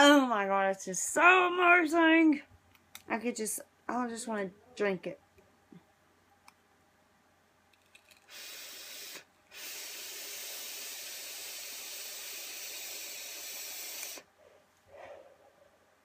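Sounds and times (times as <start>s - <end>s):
vape hissing: 8.1s - 14.3s
soft exhale: 8.3s - 14.3s.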